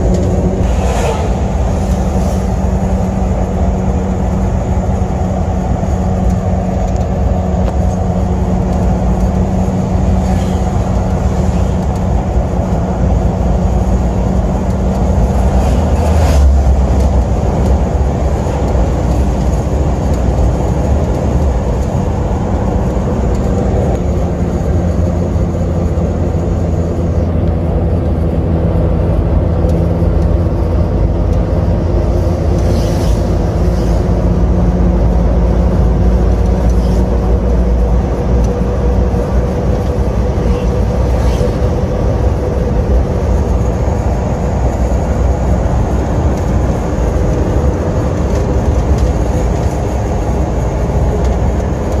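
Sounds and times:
vehicle passing: 0.0 - 5.1, 7.9 - 19.8
truck engine and road noise: 0.0 - 52.0.

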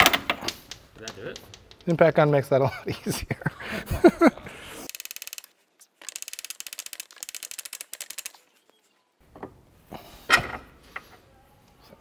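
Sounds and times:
ratchet wrench clicking: 4.9 - 8.3.

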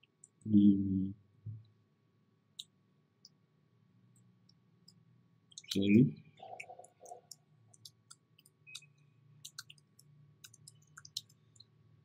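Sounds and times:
computer keyboard clicking: 6.6 - 11.7.

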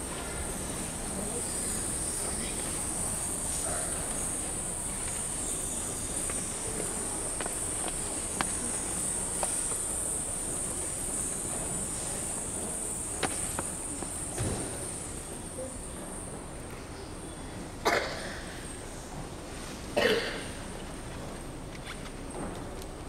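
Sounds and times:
high-pitched hiss: 0.0 - 17.5
footsteps on metal risers: 6.1 - 10.1.

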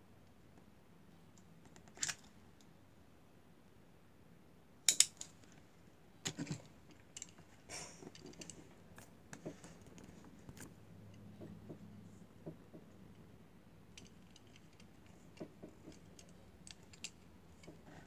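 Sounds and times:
metal toy cars clacking on wood: 14.0 - 18.0.

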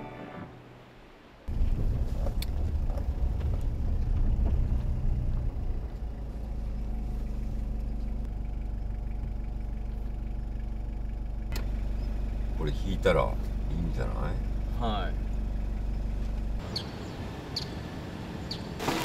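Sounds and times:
car engine running: 1.5 - 16.6.

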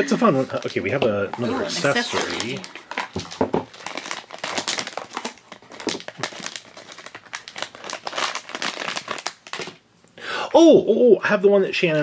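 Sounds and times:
plastic bag crinkling: 0.3 - 9.8.

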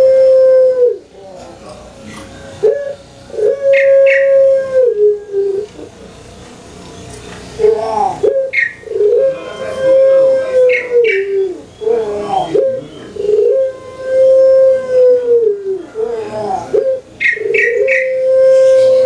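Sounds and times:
dove cooing: 0.0 - 6.0, 7.5 - 19.0
high chirps: 7.5 - 9.8, 16.8 - 19.0.

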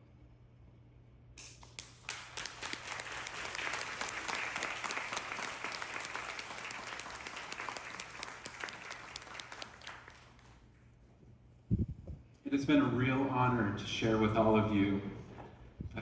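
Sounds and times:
audience applauding: 1.6 - 10.6.

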